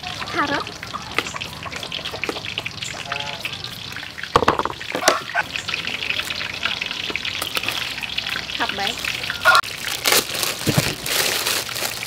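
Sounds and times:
food frying in oil: 0:00.0 - 0:12.0
sharp knocks: 0:04.4 - 0:05.1.

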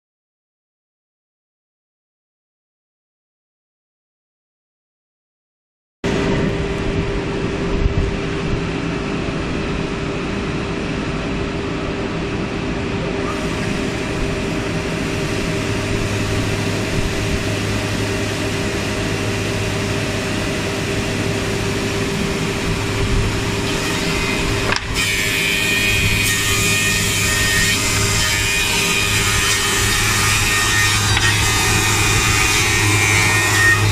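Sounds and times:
woodworking machine humming: 0:06.1 - 0:33.9
cutters working wood: 0:13.2 - 0:33.9.

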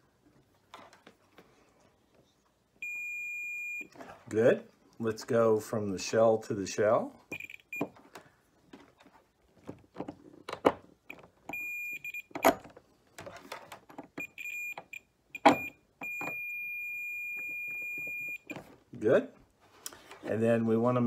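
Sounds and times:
multimeter continuity beeps: 0:02.8 - 0:03.9, 0:07.3 - 0:07.9, 0:11.1 - 0:12.6, 0:14.2 - 0:18.6.

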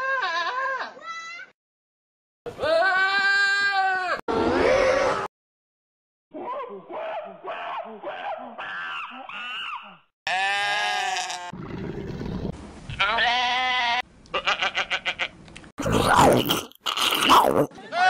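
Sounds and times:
goat bleating: 0:10.3 - 0:11.5, 0:12.9 - 0:15.4.

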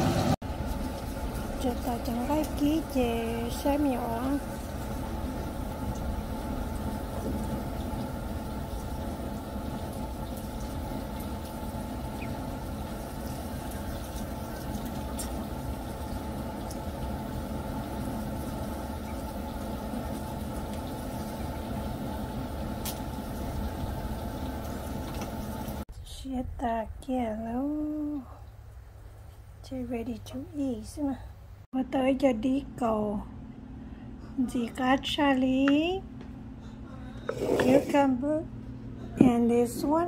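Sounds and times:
low mechanical drone: 0:00.0 - 0:40.0.

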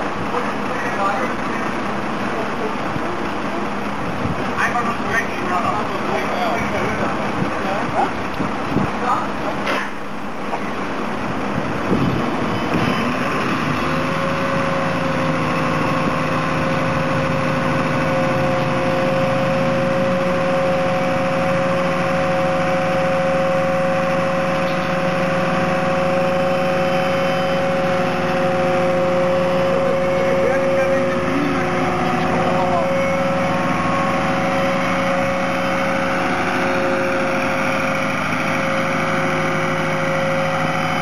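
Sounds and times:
hydraulic whine: 0:00.0 - 0:41.0
truck engine running: 0:00.0 - 0:41.0.

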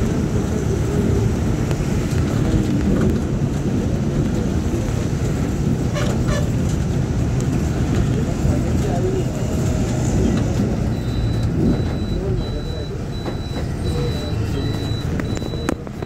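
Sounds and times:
vehicle driving on wet road: 0:00.0 - 0:16.0.

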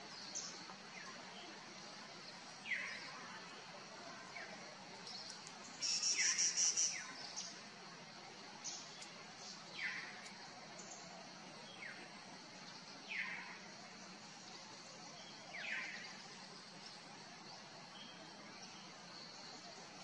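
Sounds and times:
bird rapid high chatter: 0:05.8 - 0:07.1.

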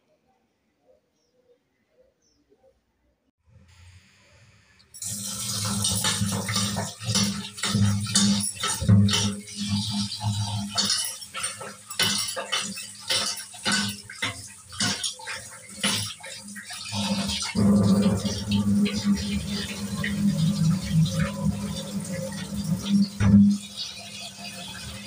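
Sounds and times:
tap water splashing into bowl: 0:05.0 - 0:24.9.

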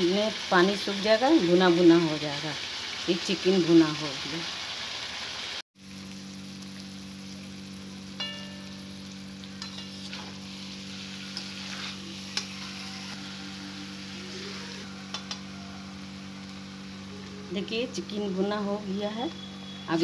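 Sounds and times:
food sizzling in a wok: 0:00.0 - 0:20.0
spatula scraping and knocking pan: 0:09.6 - 0:10.4.

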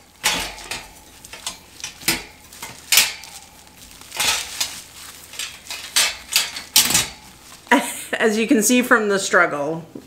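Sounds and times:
metal frames clinking and scraping: 0:00.0 - 0:07.7
plastic wrap crinkling: 0:00.0 - 0:09.4.

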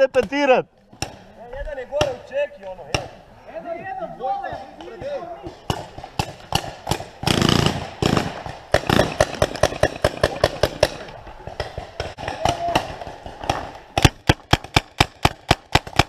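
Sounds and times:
paintball markers firing: 0:04.8 - 0:16.0.

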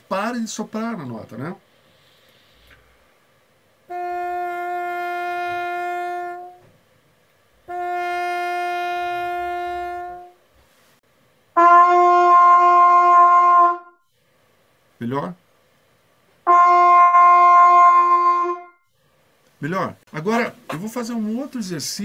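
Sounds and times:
muted trumpet notes: 0:03.9 - 0:06.7, 0:07.6 - 0:10.4, 0:11.6 - 0:14.0, 0:16.4 - 0:18.8
trumpet note over video call: 0:03.9 - 0:06.7, 0:07.7 - 0:10.4, 0:11.5 - 0:14.1, 0:16.4 - 0:18.9.

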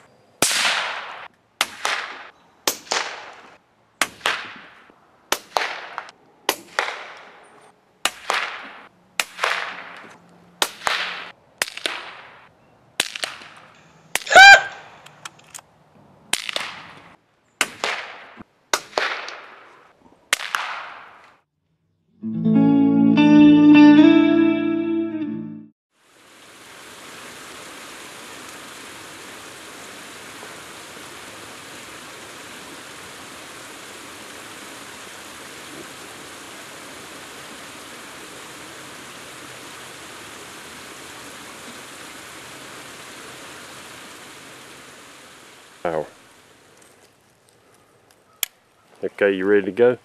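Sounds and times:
sharp cracks: 0:00.4 - 0:15.7, 0:16.3 - 0:21.5, 0:46.8 - 0:48.7
distorted electric guitar: 0:22.2 - 0:25.7.

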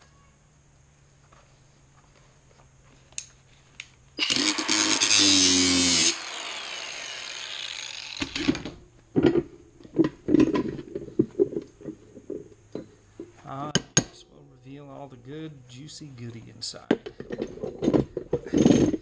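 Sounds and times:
angle grinder cutting steel: 0:04.2 - 0:08.6
metal knocks and clinks: 0:16.9 - 0:19.0.

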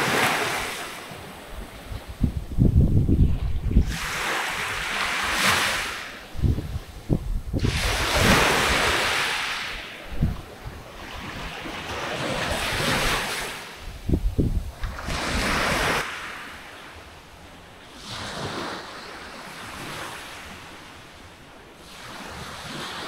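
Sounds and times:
wind buffeting microphone: 0:00.0 - 0:16.0
waves washing onto beach: 0:00.0 - 0:23.0.

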